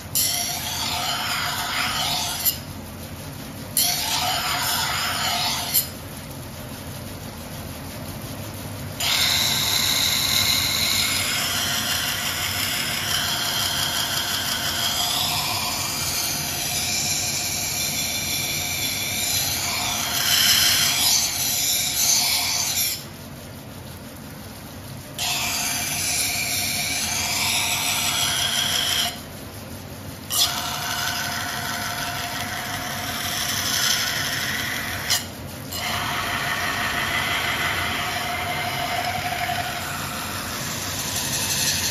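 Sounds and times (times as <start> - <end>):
blade squealing on grinding wheel: 0.0 - 2.7, 3.8 - 6.0, 9.0 - 23.1, 25.2 - 29.3, 30.3 - 41.9
grinding wheel running low: 35.7 - 41.9.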